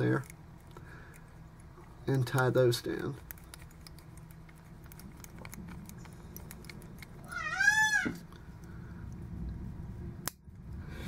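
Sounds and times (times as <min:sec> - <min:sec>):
scissors snipping: 0:02.2 - 0:07.3.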